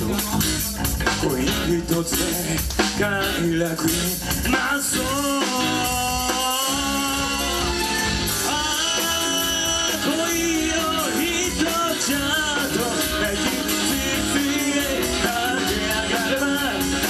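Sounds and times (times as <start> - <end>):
live rock band playing: 0.0 - 17.0
pitch-bending lead guitar line: 0.0 - 17.0.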